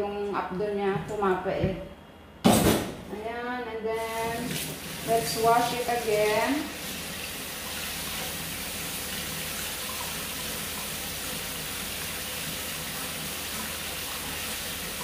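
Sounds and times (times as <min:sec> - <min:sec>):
water running from a tap: 0:04.0 - 0:15.0.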